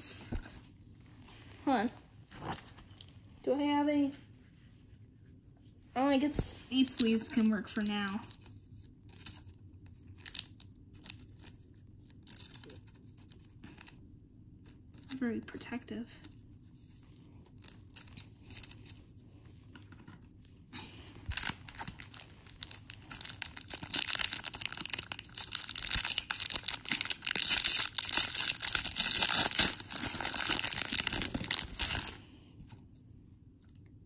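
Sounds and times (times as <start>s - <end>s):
wrapper being torn and crinkled: 6.9s - 14.0s, 21.2s - 32.3s.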